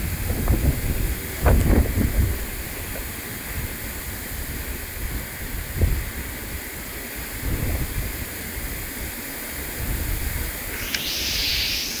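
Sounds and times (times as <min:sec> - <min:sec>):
heavy rain falling: 0:00.0 - 0:10.7
sharp click: 0:10.8 - 0:12.0.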